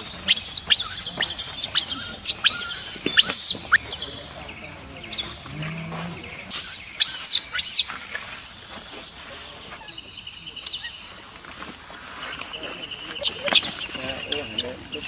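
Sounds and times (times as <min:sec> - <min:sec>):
monkeys squealing: 0:00.0 - 0:03.9, 0:06.5 - 0:07.9, 0:13.2 - 0:14.8
monkey chirps: 0:00.0 - 0:04.0, 0:06.5 - 0:08.0, 0:13.1 - 0:15.0.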